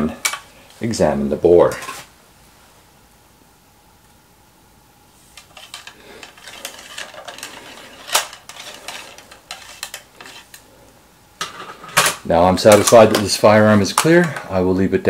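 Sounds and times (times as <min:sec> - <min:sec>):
metal clinking and scraping: 0:05.4 - 0:10.6.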